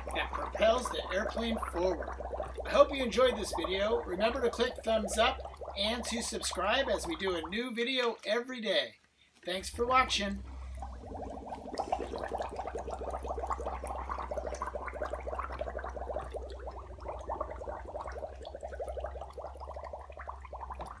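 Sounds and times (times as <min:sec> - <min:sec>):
bubbles gurgling from straw: 0:00.0 - 0:07.6, 0:09.6 - 0:21.0
low hum: 0:09.7 - 0:19.3.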